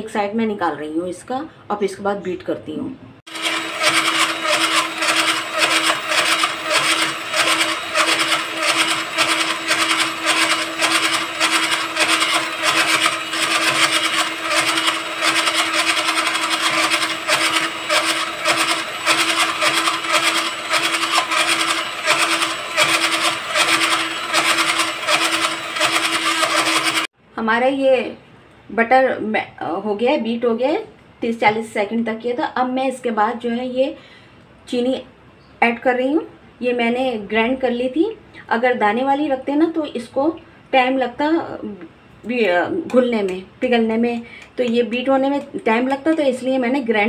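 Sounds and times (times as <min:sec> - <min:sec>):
electric hand mixer whipping: 0:03.3 - 0:27.1.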